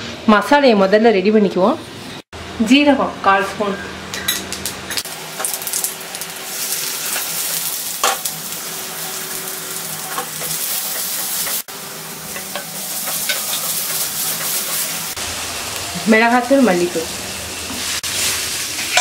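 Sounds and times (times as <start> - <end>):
oil sizzling with frying food: 4.6 - 19.0.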